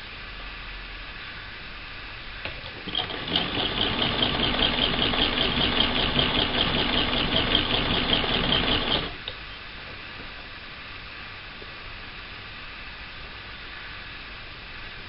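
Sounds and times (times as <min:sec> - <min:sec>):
sewing machine stitching: 0:02.5 - 0:09.3.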